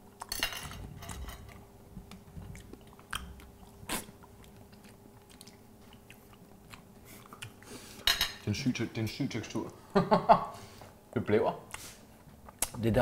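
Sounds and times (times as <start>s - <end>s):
person chewing crunchy meat: 1.5s - 8.0s.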